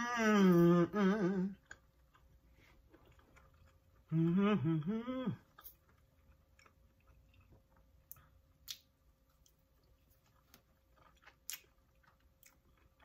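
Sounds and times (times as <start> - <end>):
chewing: 1.5 - 4.3, 5.4 - 13.0.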